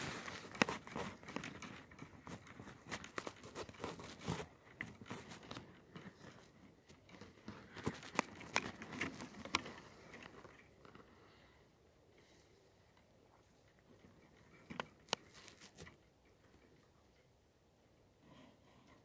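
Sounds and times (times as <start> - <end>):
crunching and crackling clicks: 0.0 - 11.1, 13.7 - 16.7.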